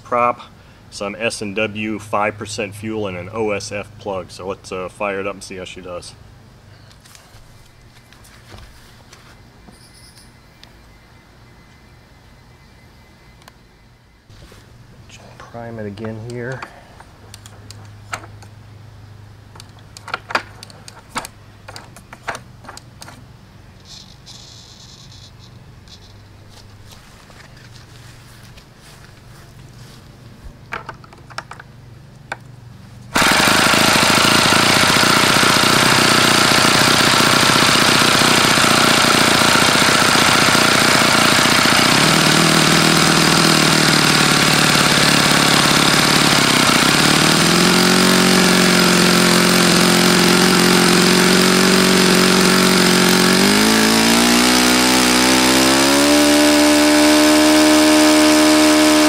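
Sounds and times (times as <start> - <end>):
model airplane engine running: 33.1 - 59.0.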